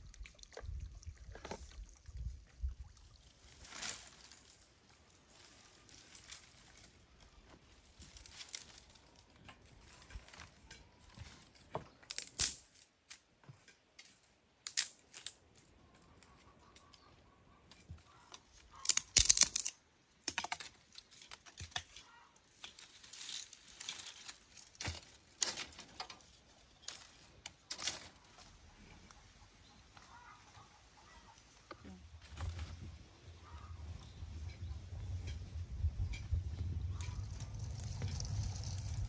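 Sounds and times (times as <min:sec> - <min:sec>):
dry twigs snapping and rustling: 0:03.4 - 0:11.4, 0:12.0 - 0:13.2, 0:14.0 - 0:17.1, 0:18.1 - 0:28.6, 0:36.0 - 0:39.0.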